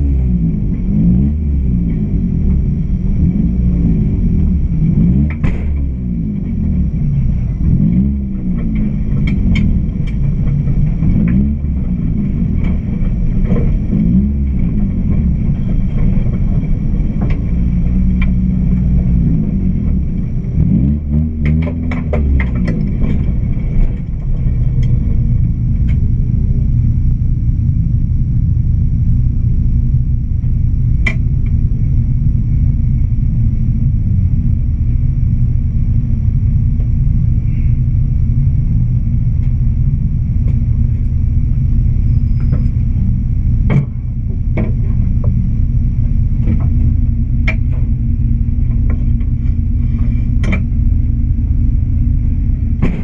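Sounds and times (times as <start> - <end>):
car engine idling: 0.0 - 53.0
sharp clicks and knocks: 5.2 - 6.8, 7.5 - 26.1, 31.0 - 31.6, 43.6 - 48.0, 48.6 - 50.9, 52.8 - 53.0.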